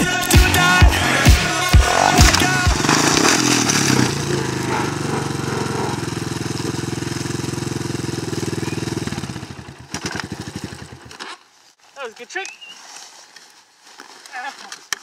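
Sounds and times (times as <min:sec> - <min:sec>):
dirt bike engine idling: 0:00.4 - 0:11.2.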